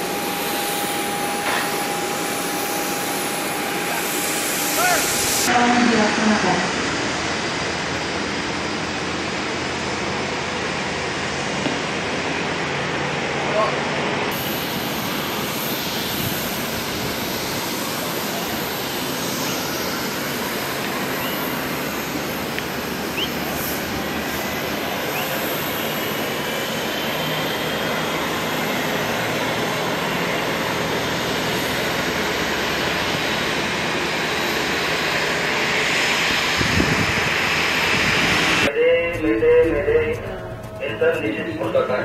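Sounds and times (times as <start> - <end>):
high engine whine: 0.0 - 42.0
jet engine rushing: 0.0 - 42.0.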